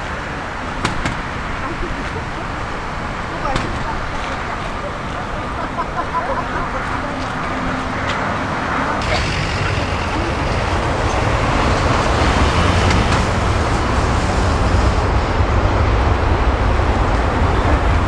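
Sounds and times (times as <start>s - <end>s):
jet engines rumbling: 0.0s - 18.0s.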